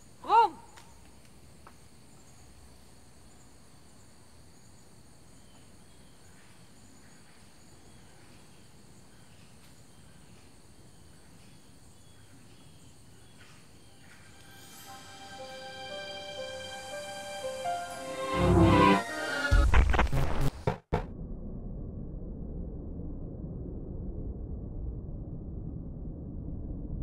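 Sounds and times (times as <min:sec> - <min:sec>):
faint outdoor hiss: 0:00.0 - 0:18.3.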